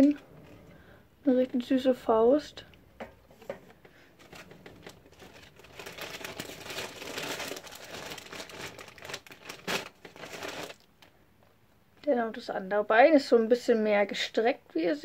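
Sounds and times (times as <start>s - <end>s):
plastic wrapping crinkling: 3.9s - 11.2s.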